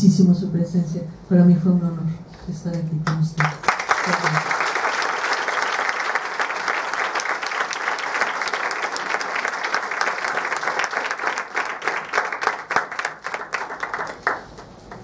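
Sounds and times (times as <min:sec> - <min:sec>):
audience applauding: 0:03.4 - 0:15.0.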